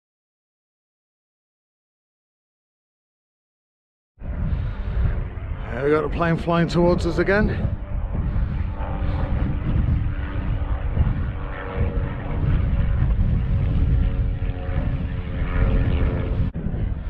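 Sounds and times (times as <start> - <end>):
aeroplane engine drone: 4.2 - 17.0
wind buffeting microphone: 4.2 - 17.0.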